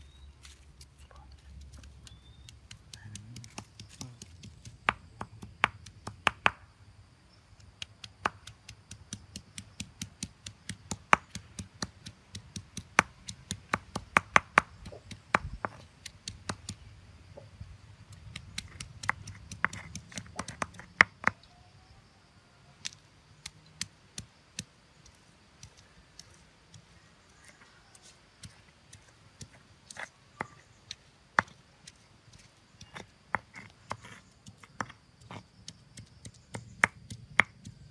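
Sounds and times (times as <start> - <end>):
stone pounding on stone: 2.4 - 6.6, 7.8 - 16.8, 18.1 - 21.4, 32.8 - 37.9.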